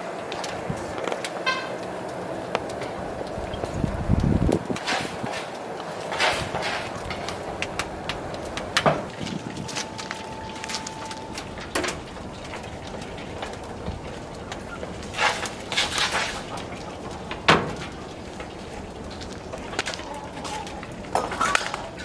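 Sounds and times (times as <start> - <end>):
wood fire crackling and popping: 0.0 - 22.0.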